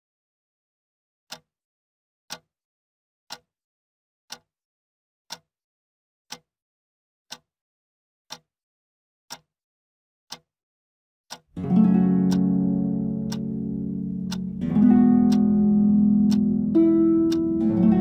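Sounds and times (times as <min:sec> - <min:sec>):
clock ticking: 0:03.3 - 0:03.5, 0:04.3 - 0:04.5, 0:09.3 - 0:09.5, 0:10.3 - 0:10.5, 0:11.3 - 0:18.0.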